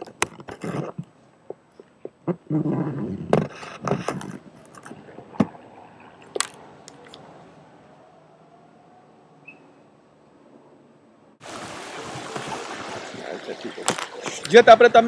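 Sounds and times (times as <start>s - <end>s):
handheld camera knocks and rubs: 0.0s - 2.2s, 3.0s - 5.6s
fountain water splashing: 11.4s - 15.0s.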